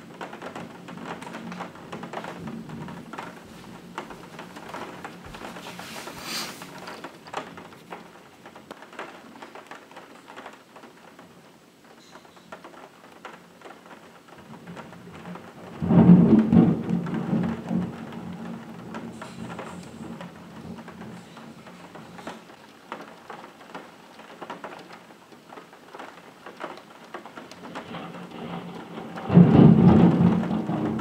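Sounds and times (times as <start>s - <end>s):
rain tapping on window glass: 0.0s - 31.0s
thunder clap: 0.1s - 8.1s, 14.5s - 22.3s, 27.4s - 31.0s.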